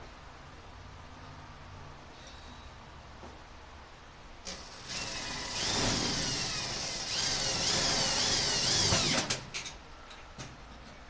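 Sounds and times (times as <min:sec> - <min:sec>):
power drill boring into sheet metal: 0:04.5 - 0:09.4.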